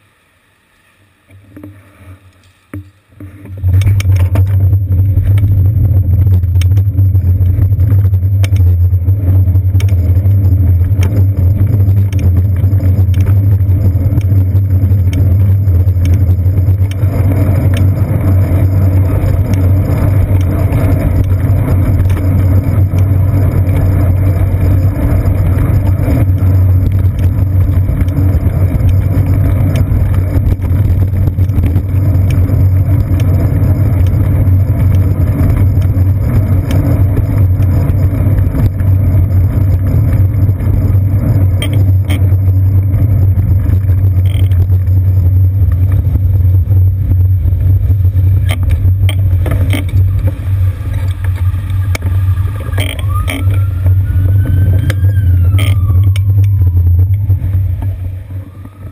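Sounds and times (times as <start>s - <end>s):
city traffic rumble: 3.2s - 58.9s
short rising squeal: 50.0s - 57.0s, 58.0s - 58.9s.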